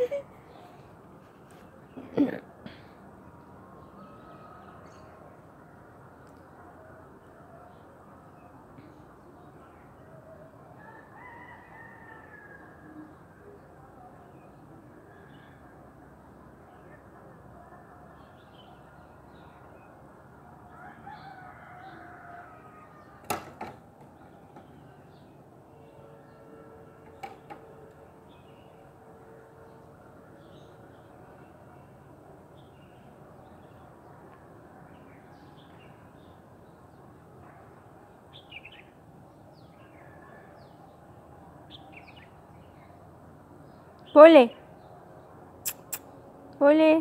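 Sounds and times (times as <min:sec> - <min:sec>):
faint outdoor background noise: 0:00.0 - 0:47.0
rooster crowing: 0:10.8 - 0:12.8, 0:20.7 - 0:23.1
small birds chirping: 0:45.6 - 0:46.2.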